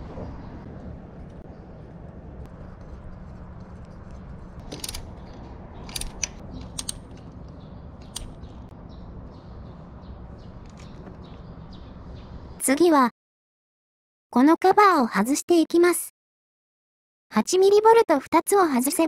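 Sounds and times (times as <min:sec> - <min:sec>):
low background hum: 0:00.0 - 0:13.0
sharp metal clicks: 0:04.6 - 0:08.7
ratchet wrench clicking: 0:04.7 - 0:05.1, 0:05.9 - 0:07.2.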